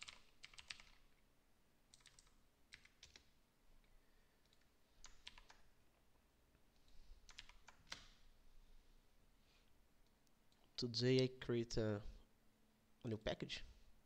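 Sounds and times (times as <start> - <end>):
typing on keyboard: 0.0 - 1.1, 1.9 - 3.3, 4.4 - 5.7, 7.3 - 8.1.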